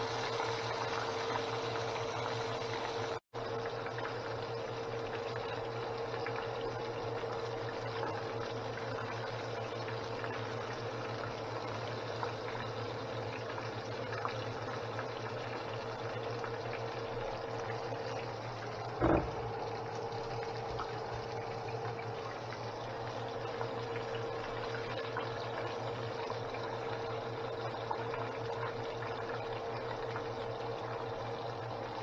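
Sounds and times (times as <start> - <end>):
chicken deep-frying in oil: 0.0 - 32.0
faint steady hum: 0.0 - 32.0
sharp knock: 19.0 - 19.4.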